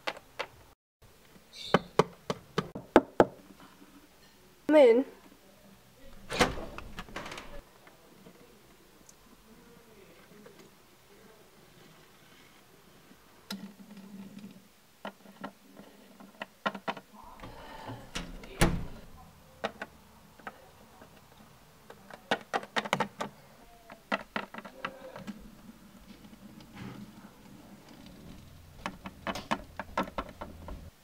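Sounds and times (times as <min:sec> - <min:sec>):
plastic toys tapping on wooden table: 0:21.9 - 0:23.3, 0:23.9 - 0:25.4, 0:28.8 - 0:30.8.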